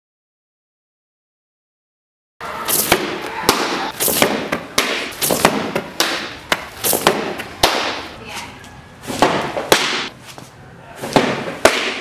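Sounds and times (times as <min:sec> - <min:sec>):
sharp cracks and knocks: 0:02.7 - 0:08.0, 0:09.2 - 0:10.1, 0:11.1 - 0:12.0.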